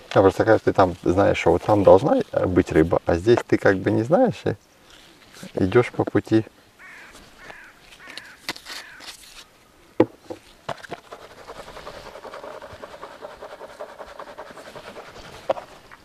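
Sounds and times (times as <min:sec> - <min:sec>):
crow cawing: 0:06.8 - 0:09.1.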